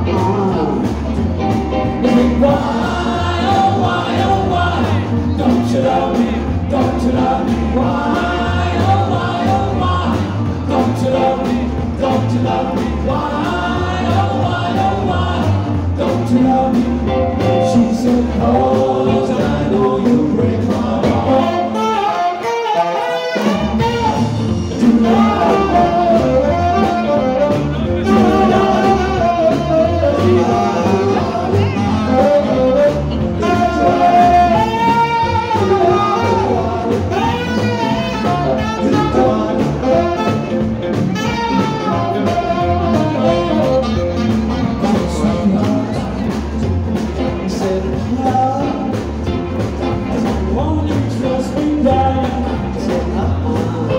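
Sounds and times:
men singing: 0.0 - 22.4, 23.5 - 49.2, 50.0 - 53.9
upright bass: 0.0 - 22.6, 23.3 - 53.9
drums: 0.0 - 53.9
saxophone: 21.0 - 46.0.

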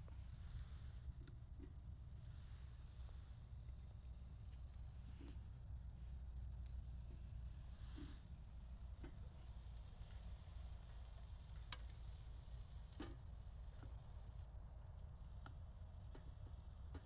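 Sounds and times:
eggs and bacon sizzling: 2.6 - 13.0.

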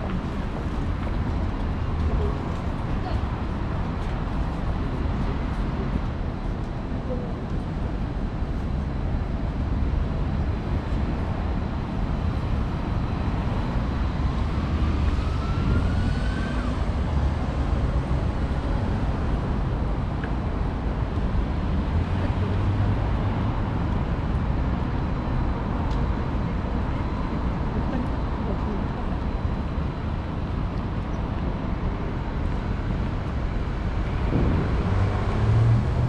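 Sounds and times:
low traffic rumble: 0.0 - 36.0
cars driving through: 8.1 - 36.0.

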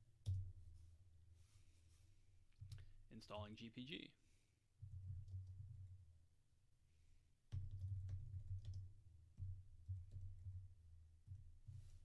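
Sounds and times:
keyboard typing: 7.5 - 8.9.

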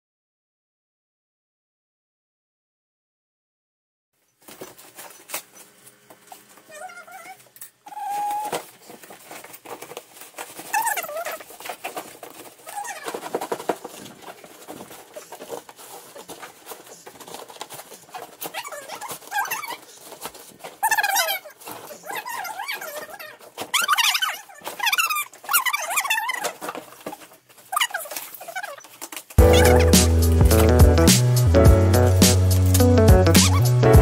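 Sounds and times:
plastic wrapping crinkling: 4.2 - 30.8
cardboard tearing: 6.4 - 30.8.

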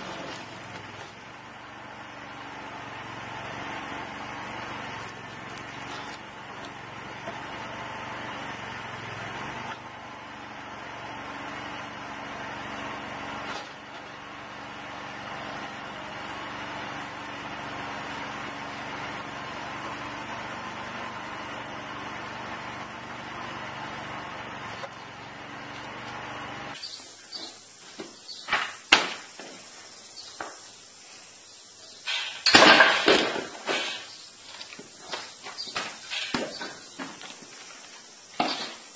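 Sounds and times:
log splitter engine running: 0.0 - 38.9
wood clatter: 32.1 - 38.9.

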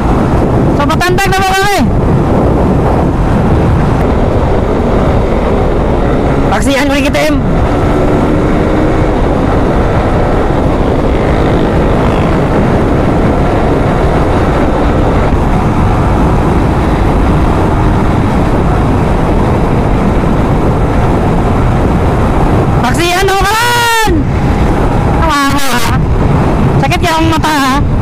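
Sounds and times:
motorcycle engine and road noise: 0.0 - 28.0
wind rushing on microphone: 0.0 - 28.0.

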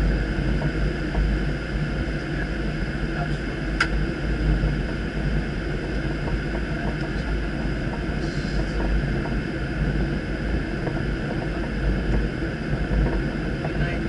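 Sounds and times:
airliner engines and airflow rumble: 0.0 - 14.0.

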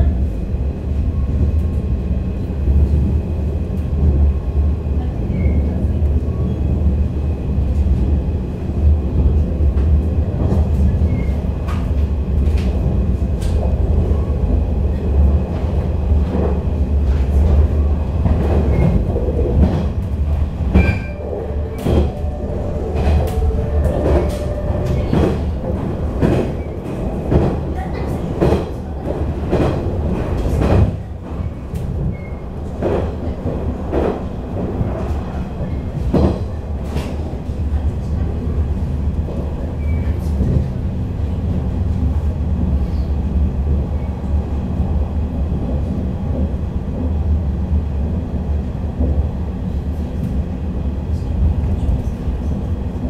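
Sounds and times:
train running at speed: 0.0 - 53.0
rail clicks: 8.8 - 44.3.

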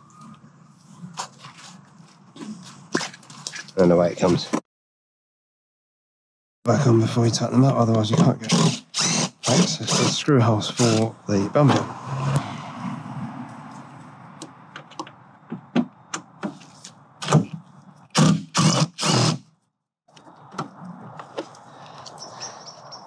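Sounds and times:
impact driver bursts: 8.4 - 10.2, 10.8 - 11.0, 18.1 - 19.5.

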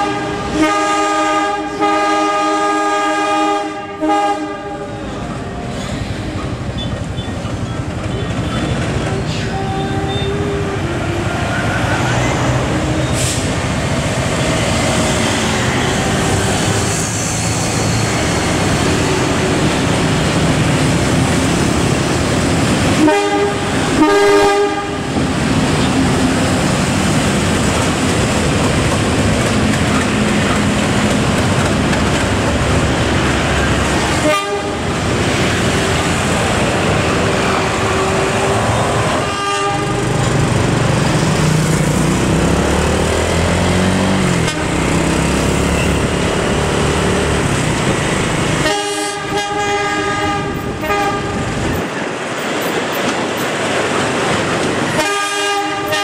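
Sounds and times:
locomotive air horn: 0.0 - 5.2, 23.0 - 25.1, 34.1 - 34.9, 37.6 - 40.1, 44.4 - 44.8, 48.6 - 51.5, 54.9 - 56.0
freight train rolling past: 0.0 - 56.0
motorcycle and car traffic: 3.6 - 55.0.

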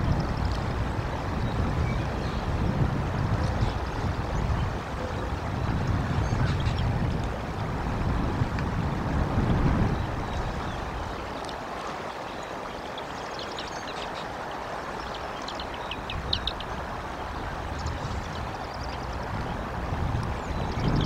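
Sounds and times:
wind on microphone: 0.0 - 21.0
bird chirps and trills: 9.9 - 16.8, 17.6 - 19.6, 20.4 - 21.0.

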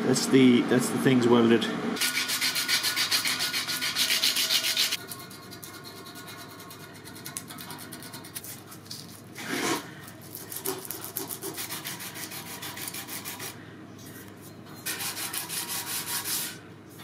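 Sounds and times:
abrasive rubbing metal blade: 2.0 - 8.6.

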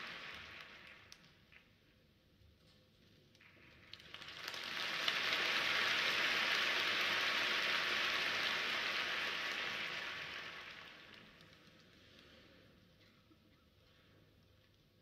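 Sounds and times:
crowd applauding: 0.0 - 1.4, 3.4 - 12.1.

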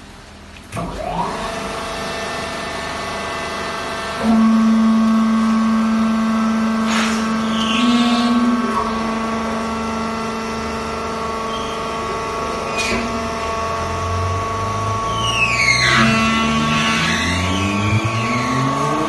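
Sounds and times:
hydraulic pump whine: 0.7 - 19.0
baler motor humming: 1.6 - 19.0.

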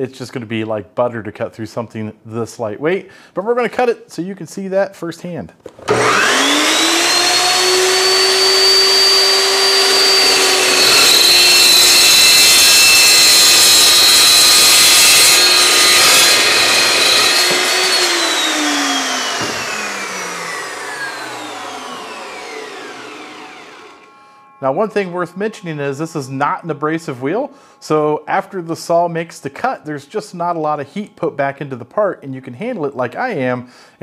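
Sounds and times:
chop saw whining: 5.7 - 29.4
saw cutting through pipe: 5.8 - 28.7.

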